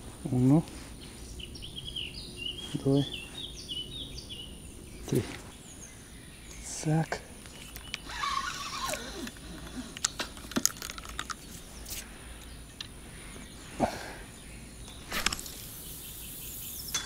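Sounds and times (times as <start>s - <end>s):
fishing tackle clicks and rustles: 7.4s - 12.1s.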